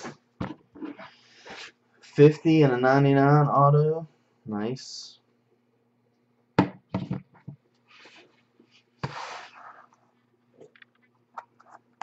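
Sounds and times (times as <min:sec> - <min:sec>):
knocks and taps on wooden table: 0:06.6 - 0:07.6
box scraping across table: 0:09.0 - 0:09.9.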